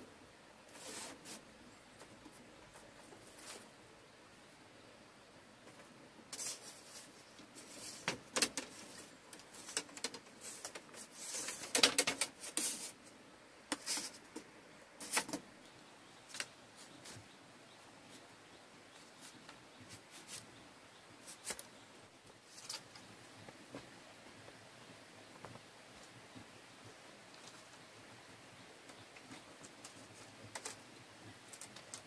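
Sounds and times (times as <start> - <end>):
bamboo strips clicking and scraping: 5.7 - 13.1, 13.7 - 17.2, 21.2 - 21.8, 22.4 - 23.1, 28.9 - 32.0.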